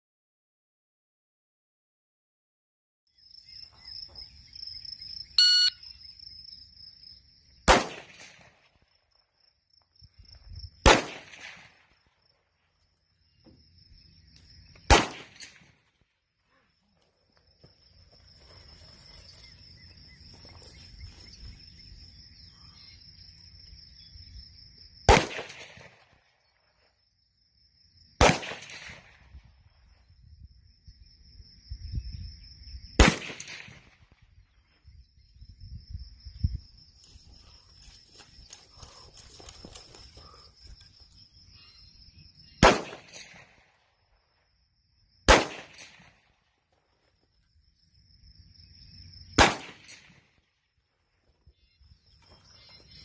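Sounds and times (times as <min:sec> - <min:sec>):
rifle shots: 0:07.6 - 0:08.6, 0:10.8 - 0:11.8, 0:14.9 - 0:15.8, 0:25.1 - 0:26.1, 0:28.2 - 0:29.2, 0:33.0 - 0:34.0, 0:42.6 - 0:43.6, 0:45.3 - 0:46.2, 0:49.4 - 0:50.2.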